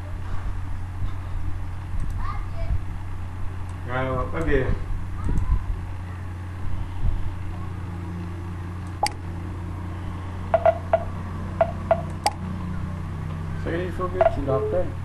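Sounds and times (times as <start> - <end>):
steady low hum: 0.0 - 15.0
computer mouse clicking: 2.0 - 2.2, 8.8 - 9.2, 11.6 - 12.4.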